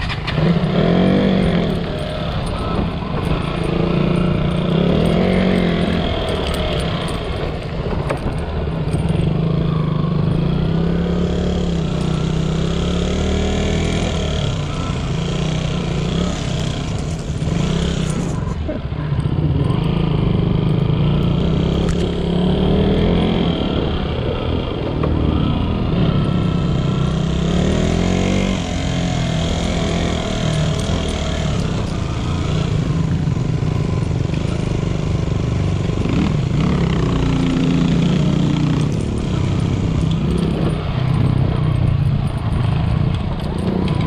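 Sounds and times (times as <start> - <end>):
motorcycle engine revving: 0.0 - 44.0.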